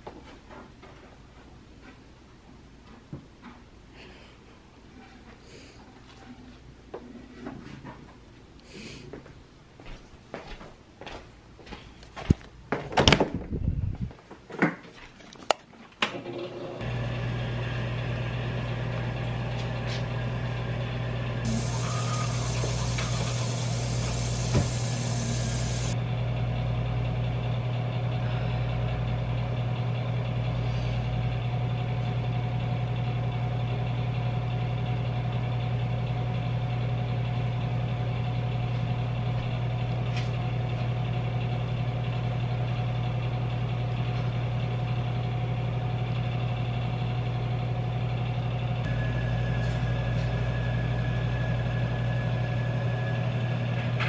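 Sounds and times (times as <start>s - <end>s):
low mechanical hum: 0.0s - 54.0s
electric toothbrush brushing: 21.4s - 26.0s.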